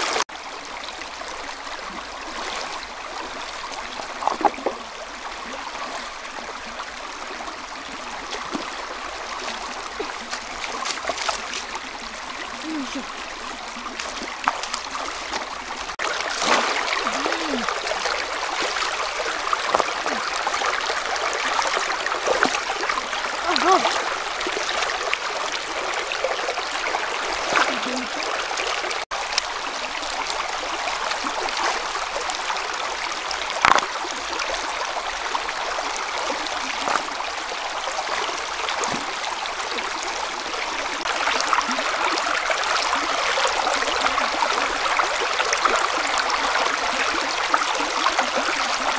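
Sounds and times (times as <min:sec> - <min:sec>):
river water rushing over stones: 0:00.0 - 0:48.9
water splashes from wading: 0:01.9 - 0:29.4, 0:33.4 - 0:34.6.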